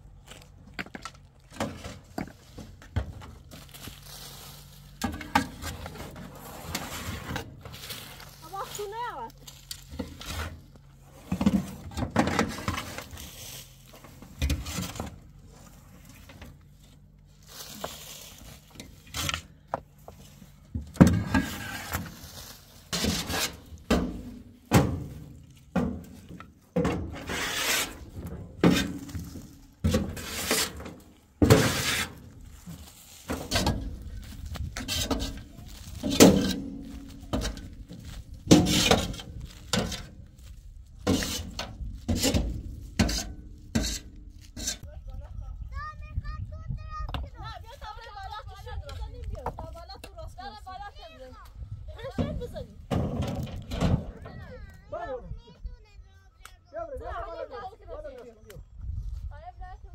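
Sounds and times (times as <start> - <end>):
shovels scraping metal truck bed: 1.5 - 16.7, 17.5 - 19.6, 20.8 - 44.9.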